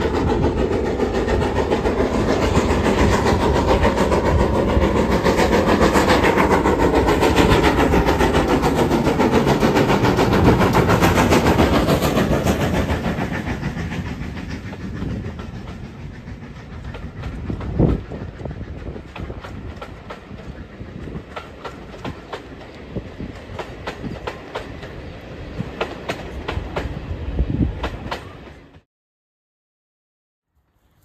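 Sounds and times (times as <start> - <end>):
train coaches rolling past: 0.0 - 28.8
wheels clicking over rail joints: 6.4 - 25.0.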